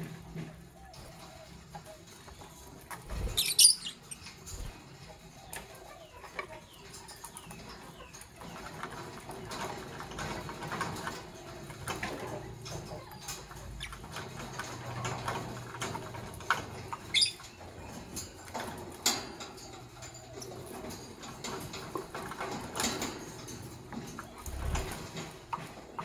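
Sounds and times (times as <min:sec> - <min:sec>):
birds scratching and tapping: 0:00.0 - 0:26.0
bird chirps: 0:03.2 - 0:04.4, 0:17.1 - 0:17.6.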